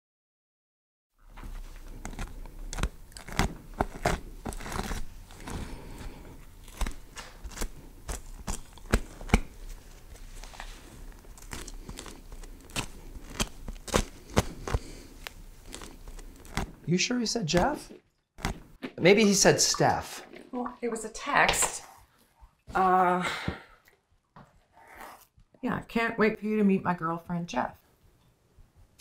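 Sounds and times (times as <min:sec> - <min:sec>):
crinkling and rustling: 0:01.2 - 0:19.3.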